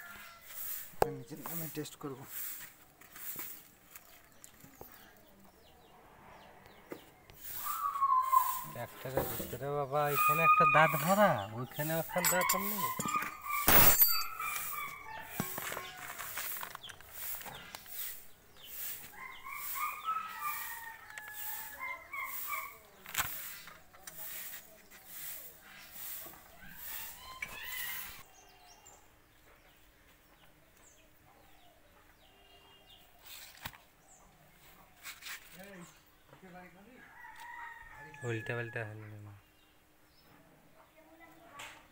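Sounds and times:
chickens clucking: 0:06.7 - 0:28.3.

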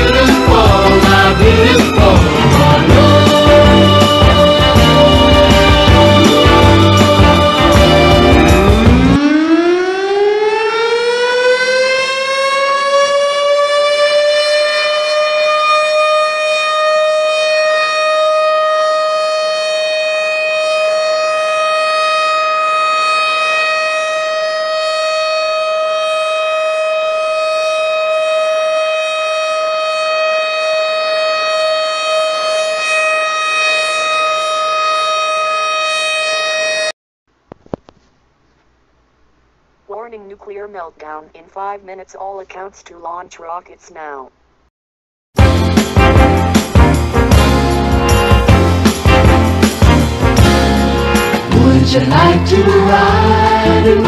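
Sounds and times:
civil defense siren: 0:02.6 - 0:37.0, 0:46.1 - 0:51.5.

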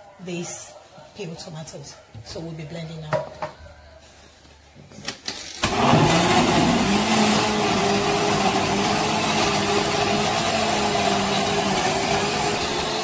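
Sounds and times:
blender motor whirring: 0:05.6 - 0:13.0.

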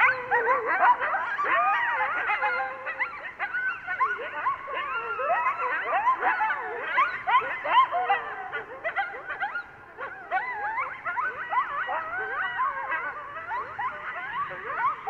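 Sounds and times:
coyotes yipping and howling: 0:00.0 - 0:15.0.

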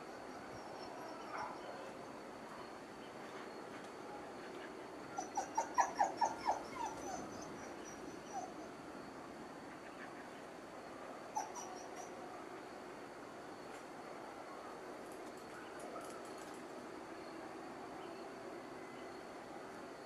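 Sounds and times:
dog barking: 0:01.2 - 0:01.9.

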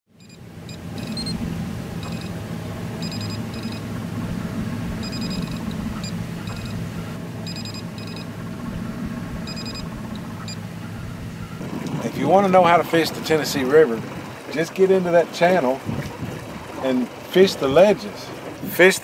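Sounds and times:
fish finder beeping: 0:00.1 - 0:11.6
boat motor hum: 0:00.1 - 0:19.0.

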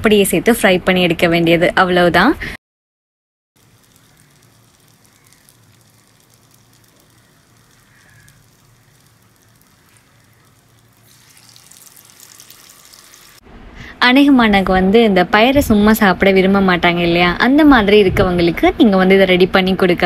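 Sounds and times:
oil sizzling and crackling: 0:03.6 - 0:13.5.

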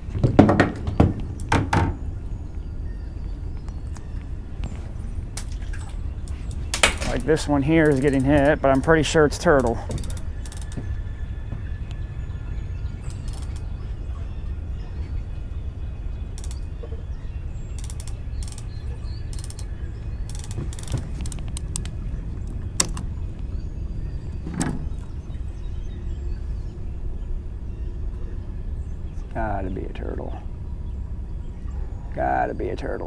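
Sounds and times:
low steady rumble: 0:00.0 - 0:33.0
fishing reel clicker ticking: 0:09.6 - 0:10.8, 0:13.1 - 0:13.6, 0:16.4 - 0:16.6, 0:17.7 - 0:19.7, 0:20.3 - 0:21.9.

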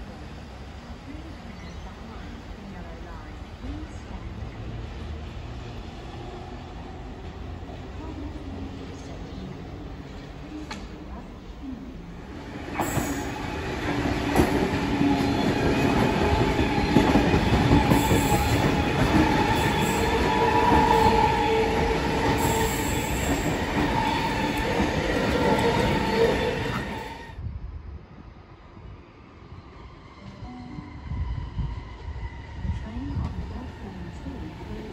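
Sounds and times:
train wheels rumbling on rail: 0:00.0 - 0:27.4, 0:29.6 - 0:34.9.

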